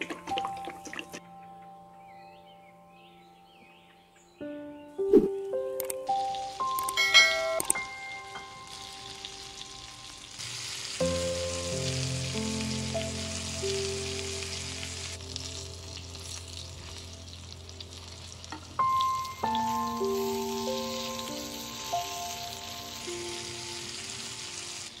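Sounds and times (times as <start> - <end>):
soft background music: 0.0 - 25.0
chicken frying in a pan: 6.2 - 25.0.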